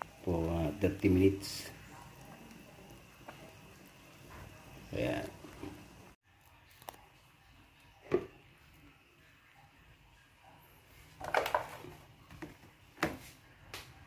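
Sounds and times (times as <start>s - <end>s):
plastic container clatter: 11.2s - 12.0s.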